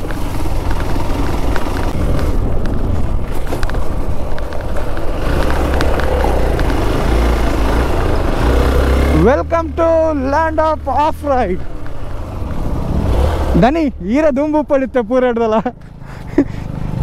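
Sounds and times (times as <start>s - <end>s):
clicks and rattles: 0.0s - 6.9s
motorcycle engine rumble: 0.0s - 17.0s.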